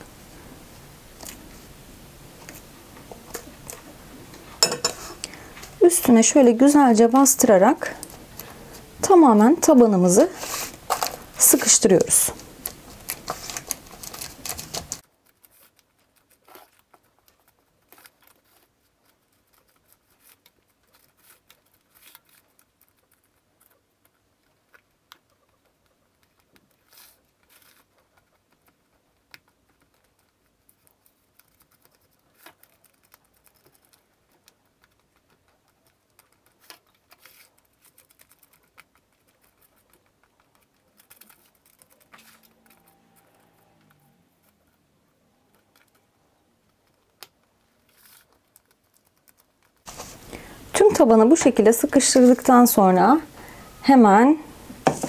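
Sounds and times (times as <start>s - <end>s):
spatula scraping in pan: 4.6s - 5.5s.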